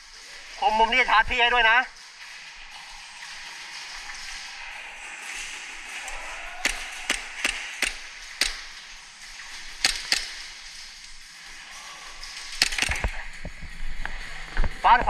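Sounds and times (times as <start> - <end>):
airsoft gunfire cracks: 6.6 - 8.7, 9.8 - 10.6.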